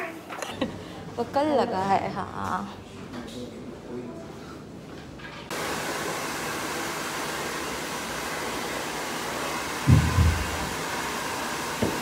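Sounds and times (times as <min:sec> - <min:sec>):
hair dryer blowing air: 0:05.5 - 0:12.0.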